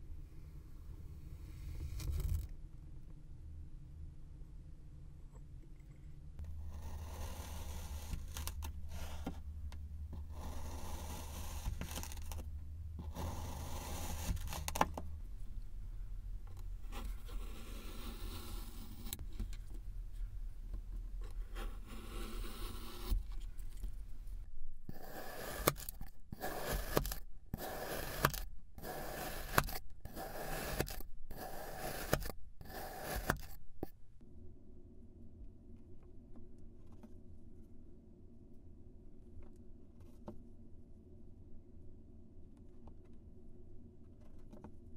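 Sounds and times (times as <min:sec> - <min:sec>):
knife scraping sand: 0:10.3 - 0:12.4, 0:13.0 - 0:14.8, 0:21.5 - 0:23.3, 0:24.9 - 0:33.6.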